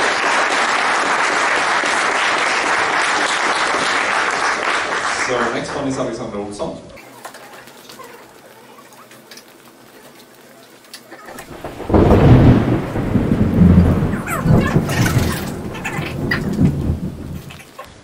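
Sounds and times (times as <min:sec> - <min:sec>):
faint clicks: 0:06.9 - 0:11.7.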